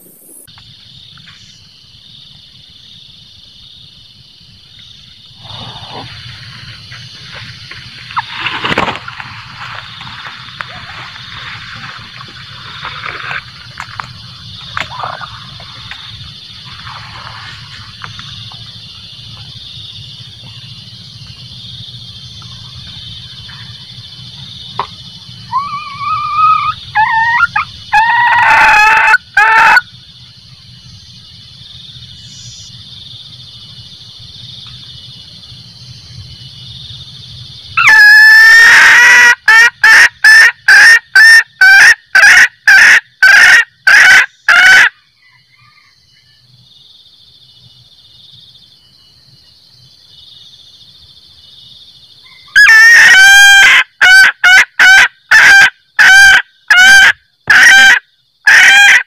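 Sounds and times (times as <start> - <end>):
high hiss: 0.0 - 3.4
hen cackling: 5.4 - 18.6, 24.8 - 29.9, 37.8 - 45.9, 52.2 - 59.0.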